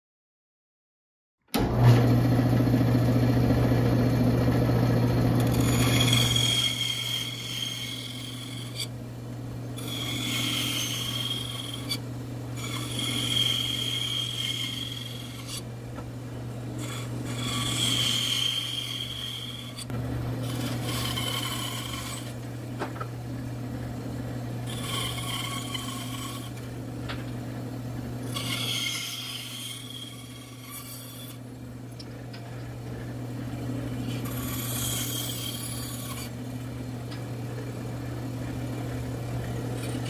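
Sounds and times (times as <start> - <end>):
band saw motor hum: 1.6 - 40.0
saw blade rasping through wood: 5.3 - 9.0, 9.7 - 15.7, 16.7 - 22.5, 24.6 - 26.7, 28.2 - 31.4, 33.8 - 36.4, 39.4 - 40.0.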